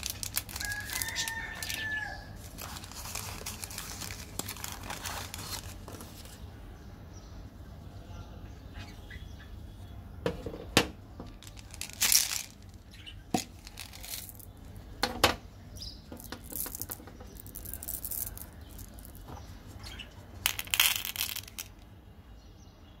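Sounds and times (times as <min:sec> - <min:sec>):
plastic tube clicks and rustles: 0:00.0 - 0:01.8, 0:11.2 - 0:15.4, 0:16.1 - 0:19.5, 0:20.4 - 0:21.8
candy beans clattering into plastic: 0:00.0 - 0:06.2, 0:11.3 - 0:14.6, 0:16.1 - 0:19.3, 0:20.4 - 0:21.8
foil wrapper crinkling: 0:00.0 - 0:06.4.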